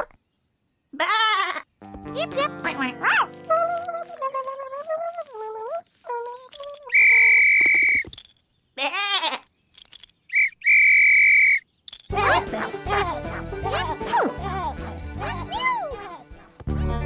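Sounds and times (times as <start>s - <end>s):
cartoon lamb bleating: 1.0s - 1.7s, 8.8s - 9.5s
shrill metal whistle blasts: 6.9s - 8.1s, 10.3s - 11.6s.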